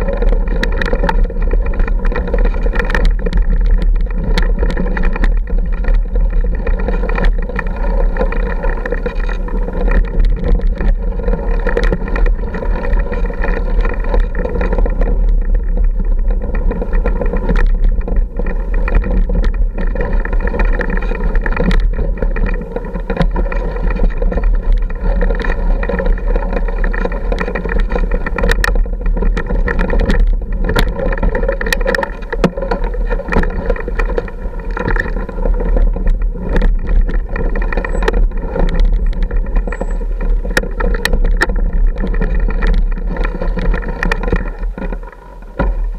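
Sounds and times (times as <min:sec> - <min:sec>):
motorcycle clattering over rocks: 0:00.0 - 0:45.9
motorcycle engine running at low speed: 0:00.0 - 0:45.9.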